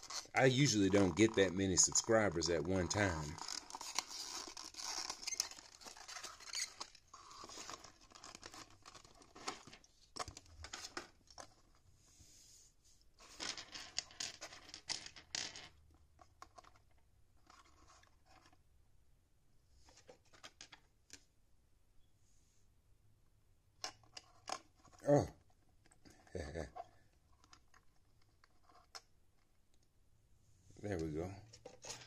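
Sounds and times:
packaging rustling and clicking: 0.0 - 11.5.

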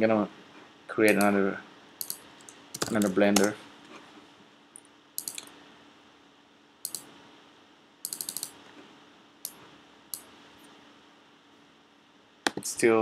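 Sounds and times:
faint steady hum: 0.0 - 13.0
mouse and keyboard clicks: 2.0 - 3.6, 5.2 - 5.5, 6.9 - 7.1, 8.0 - 8.6.

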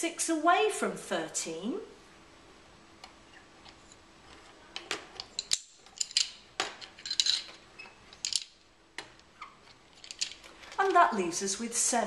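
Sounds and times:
plastic rods clicking and clattering: 3.0 - 11.2.

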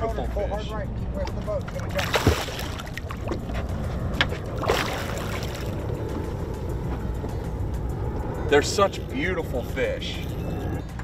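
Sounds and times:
boat motor rumbling: 0.0 - 11.0
fish splashing: 1.9 - 3.6, 4.5 - 5.8.

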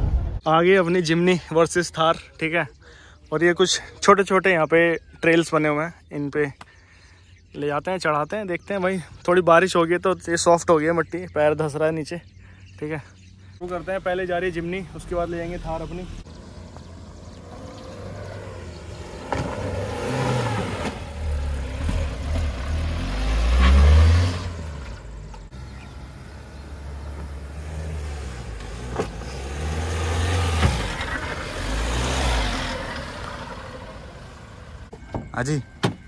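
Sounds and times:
off-road engines revving: 9.0 - 35.0.

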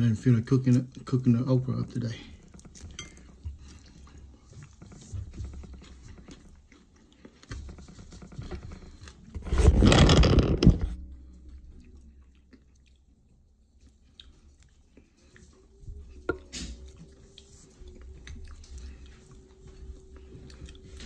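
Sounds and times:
person chewing chicken: 2.4 - 9.3, 11.7 - 21.0
phone rubbing rustle: 7.6 - 11.0.

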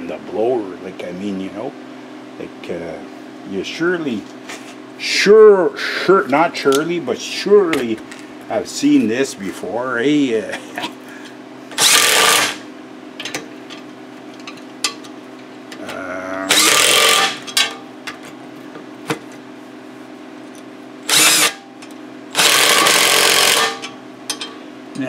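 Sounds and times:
impact driver hammering nuts: 11.8 - 12.6, 16.5 - 17.6, 21.1 - 21.6, 22.3 - 23.9.

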